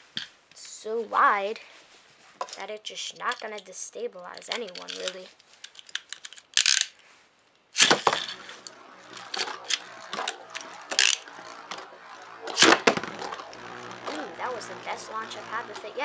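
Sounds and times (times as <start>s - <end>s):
spinning top clicking on plastic: 4.3s - 6.9s, 7.8s - 16.0s
ripcord launcher zip and clack: 7.8s - 16.0s
faint steady whir: 8.1s - 16.0s.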